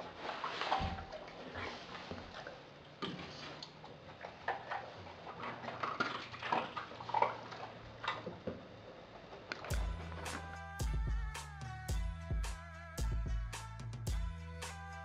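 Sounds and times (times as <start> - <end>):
dog eating with wet smacks: 1.1 - 8.3.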